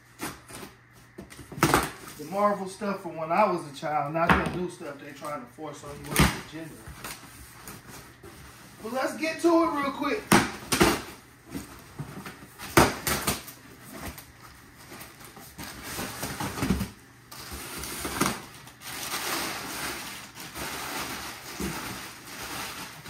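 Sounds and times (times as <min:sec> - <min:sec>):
packing paper rustling: 0:05.1 - 0:23.0.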